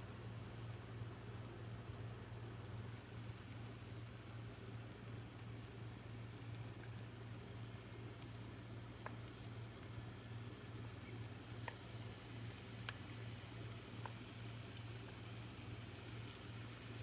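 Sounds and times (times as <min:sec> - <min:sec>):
low hum and soft hiss: 0:00.0 - 0:17.0.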